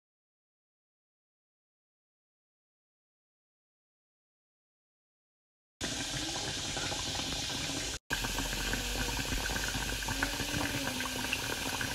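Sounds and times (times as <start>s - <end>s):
food bubbling and popping: 5.8s - 11.9s.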